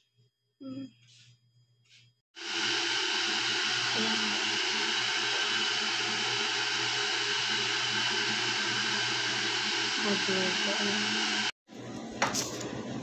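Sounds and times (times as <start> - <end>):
electric fan whirring: 2.4 - 13.0.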